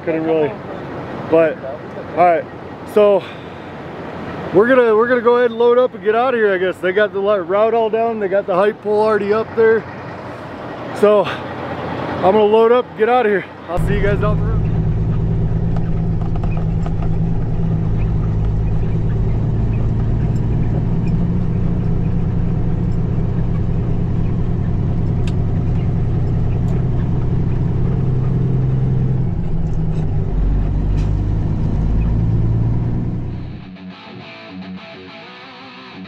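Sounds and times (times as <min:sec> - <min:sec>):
road noise: 0:00.0 - 0:36.0
diesel truck engine under load: 0:06.2 - 0:33.7.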